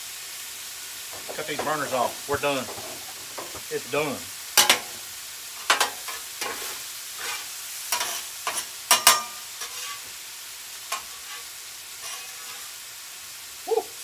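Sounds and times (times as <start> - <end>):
food sizzling on griddle: 0.0 - 14.0
metal spatula scraping steel: 5.6 - 10.1, 10.9 - 12.8.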